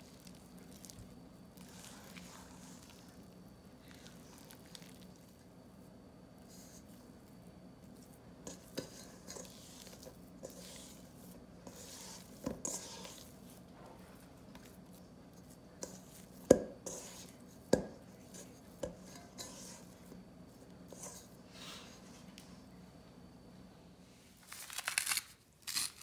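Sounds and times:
sticky dough squelching: 0.0 - 5.9.

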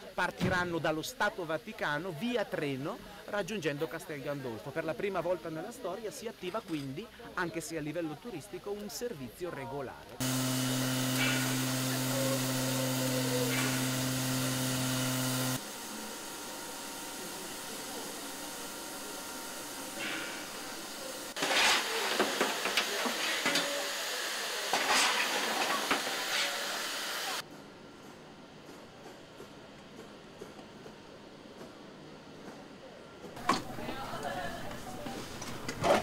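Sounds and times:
steam hissing: 10.2 - 27.4.

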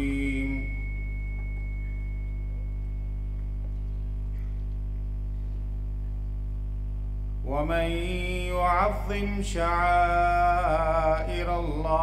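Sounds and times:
faint high ringing tone: 0.0 - 6.4
electrical mains hum: 0.0 - 12.0.

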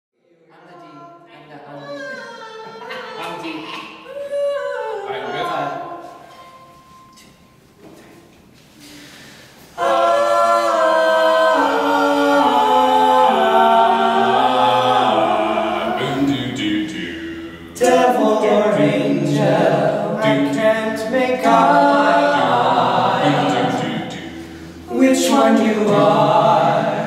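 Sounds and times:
men singing a cappella: 9.8 - 27.0.

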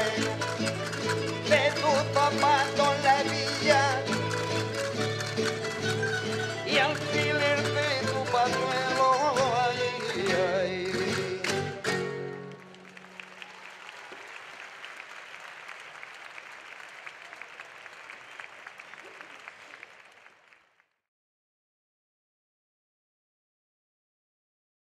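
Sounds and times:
audience applause: 0.0 - 10.4, 12.4 - 21.0
person singing: 0.0 - 12.2.

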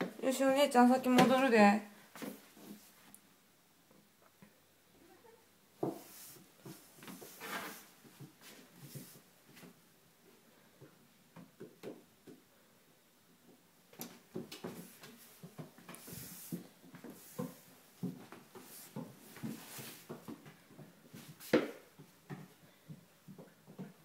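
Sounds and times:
footsteps on wooden stairs: 14.3 - 24.0
rustling hiss: 14.8 - 17.8.

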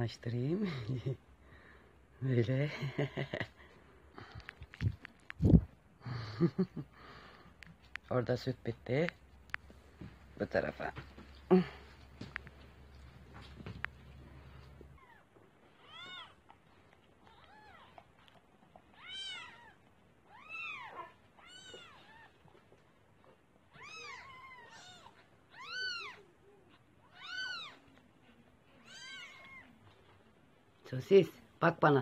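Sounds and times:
kittens mewing: 23.7 - 27.9.

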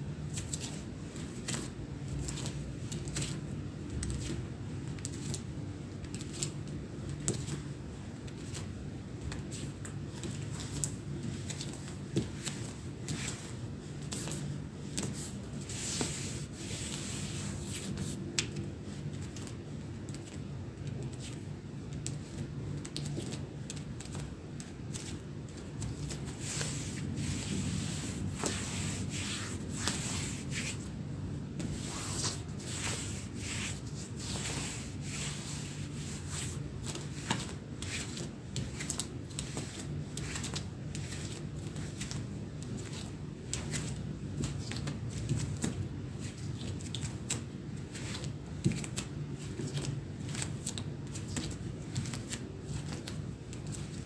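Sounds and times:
steady low hum: 0.0 - 54.0
denim jeans rubbing: 25.8 - 31.0, 31.6 - 38.1.

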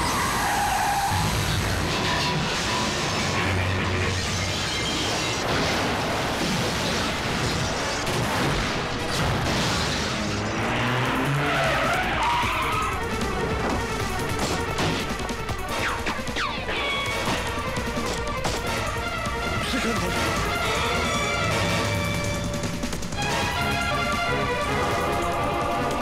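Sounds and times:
tyres skidding: 0.0 - 6.2, 8.9 - 26.0
action film score: 0.0 - 26.0
vehicle engine: 8.9 - 16.3.

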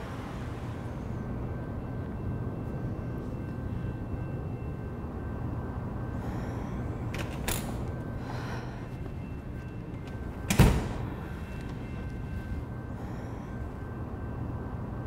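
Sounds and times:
low traffic hum: 0.0 - 15.0.

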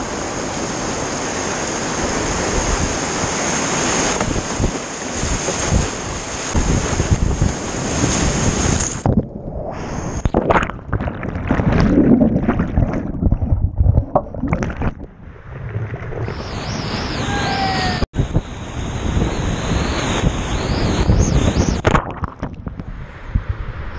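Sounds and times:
whitewater rushing and splashing: 0.0 - 9.1
water washing over microphone: 0.8 - 18.4, 21.8 - 22.9.

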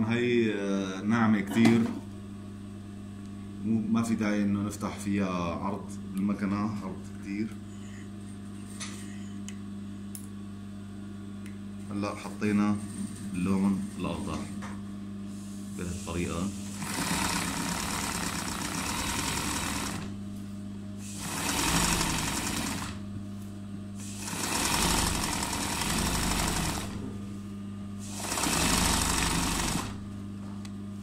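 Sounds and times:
motor humming: 15.8 - 20.2, 21.0 - 23.2, 23.8 - 30.8
sewing machine stitching: 16.7 - 20.1, 21.1 - 23.0, 24.0 - 27.0, 28.1 - 30.0.

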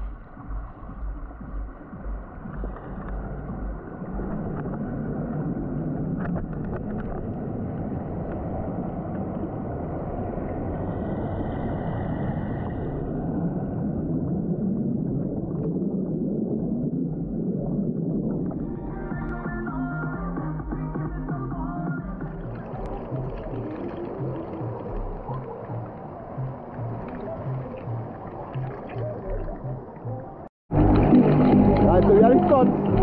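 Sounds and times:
bubbles streaming: 0.0 - 7.3, 12.6 - 19.4, 22.0 - 33.0
muffled river water underwater: 0.0 - 33.0.

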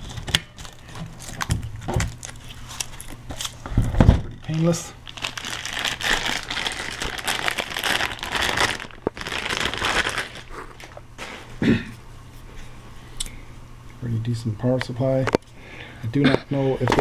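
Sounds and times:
plastic packaging crinkling: 0.0 - 3.6, 4.4 - 11.3.

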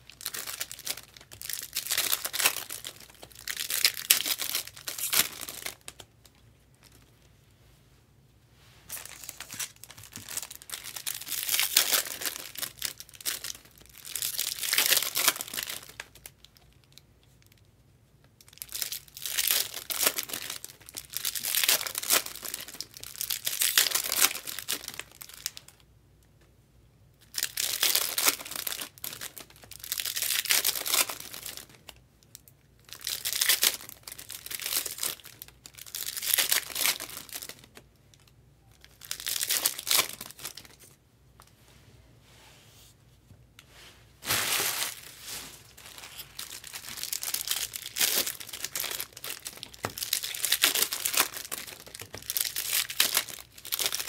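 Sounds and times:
foil wrappers tearing and crinkling: 0.1 - 6.0, 8.9 - 16.1, 18.6 - 25.6, 27.4 - 31.8, 32.9 - 37.7, 38.9 - 40.8, 44.2 - 54.0.

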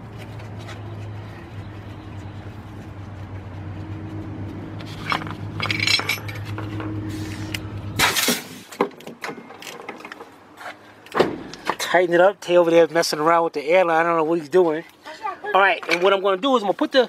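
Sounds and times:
metal clinks and taps: 5.0 - 6.9.

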